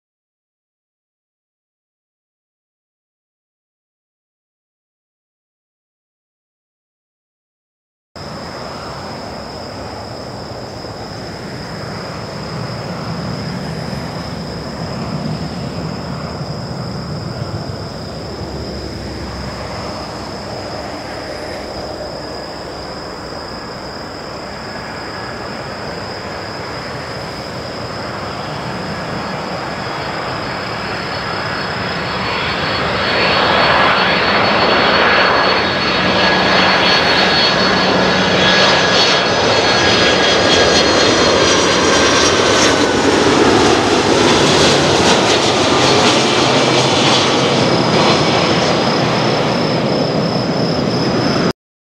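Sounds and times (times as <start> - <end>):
jet engines passing overhead: 8.2 - 51.5
whining engine tones: 8.3 - 51.5.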